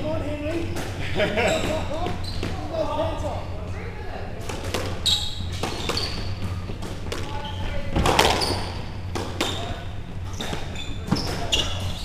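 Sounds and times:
squash ball hitting rackets and walls: 4.4s - 12.0s.

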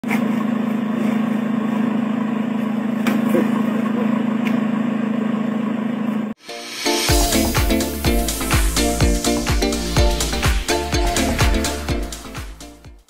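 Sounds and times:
low mechanical hum: 0.0s - 6.4s.

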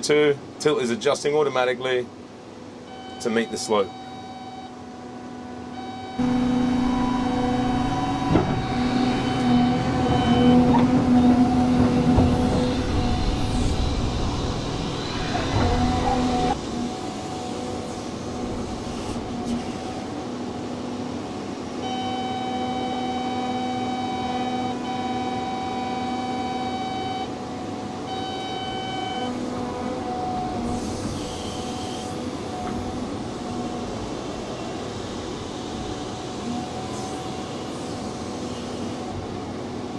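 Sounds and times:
excavator engine and hydraulic hum: 0.0s - 39.9s
electronic warning tone: 2.9s - 4.8s, 5.4s - 16.6s, 21.8s - 27.4s, 28.0s - 29.4s.

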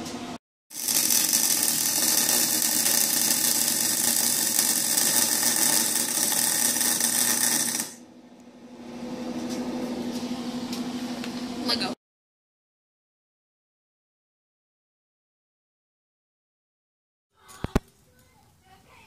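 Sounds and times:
welding arc crackling: 0.7s - 8.0s.

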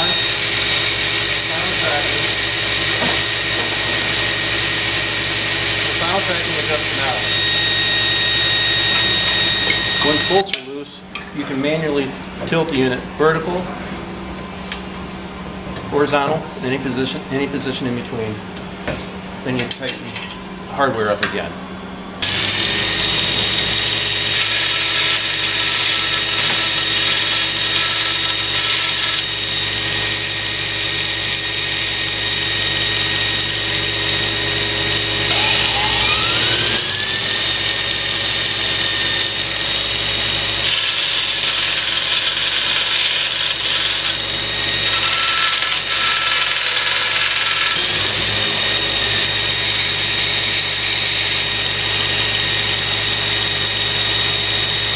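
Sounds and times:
belt grinder running: 0.0s - 10.5s, 22.2s - 54.9s
metal grinding against belt: 38.7s - 51.4s.

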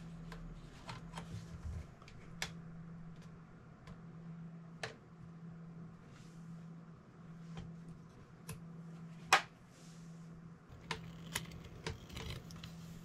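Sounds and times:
faint steady hum: 0.0s - 13.0s
plastic gear clicking and tapping: 10.8s - 12.7s.

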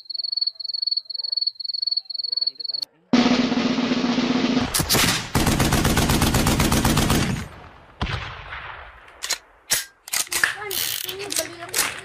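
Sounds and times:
single gunshots: 3.2s - 6.0s, 7.0s - 9.7s
machine-gun burst: 3.2s - 7.5s.

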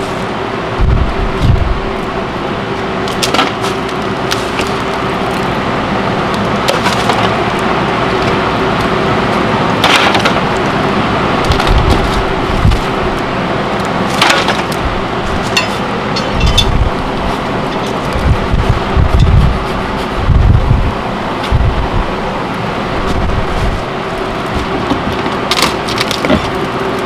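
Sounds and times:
steady hum: 0.0s - 27.0s
wooden boards cracking and splintering: 3.1s - 5.4s, 6.6s - 7.5s, 9.8s - 10.7s, 14.1s - 14.8s, 24.5s - 26.8s.

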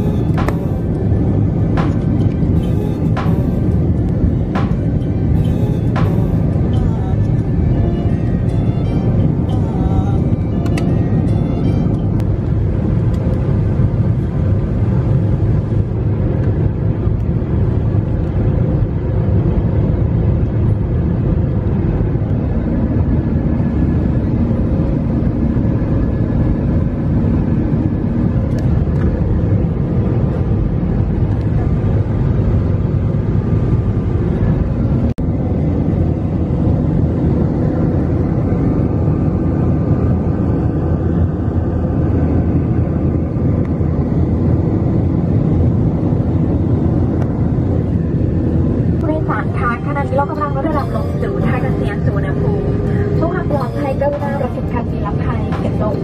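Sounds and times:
jet engine drone in cabin: 0.0s - 56.0s
faint steady hums: 46.3s - 56.0s.

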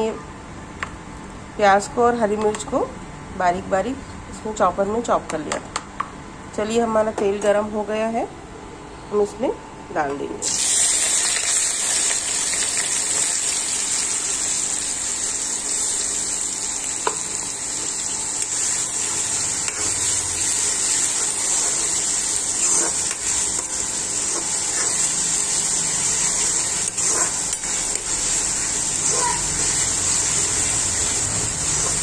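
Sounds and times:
onion sizzling in hot oil: 10.4s - 32.0s.

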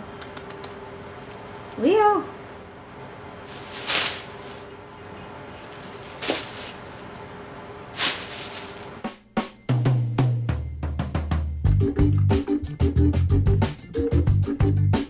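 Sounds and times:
sharp clicks: 0.2s - 0.8s
plastic bag crinkling: 3.4s - 7.2s, 7.9s - 9.0s.

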